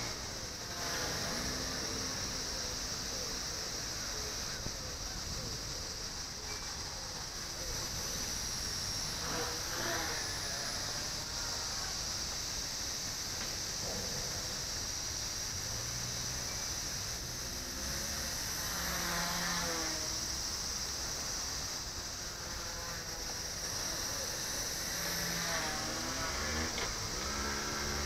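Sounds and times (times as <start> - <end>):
rc helicopter rotor whine: 0.0 - 28.0
steady high hiss: 0.0 - 28.0.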